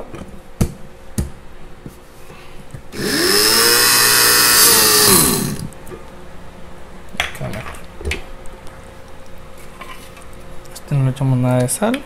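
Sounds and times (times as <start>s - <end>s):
blender motor whining: 3.0s - 5.8s.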